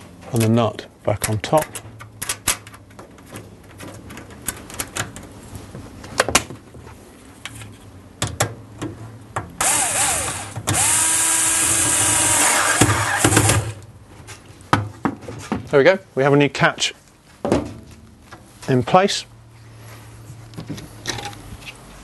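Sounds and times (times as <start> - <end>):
cordless drill motor running: 9.6 - 13.6.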